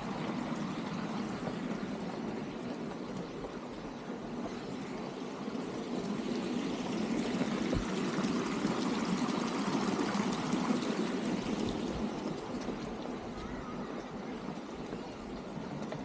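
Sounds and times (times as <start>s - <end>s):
fountain water rushing: 0.0s - 16.0s.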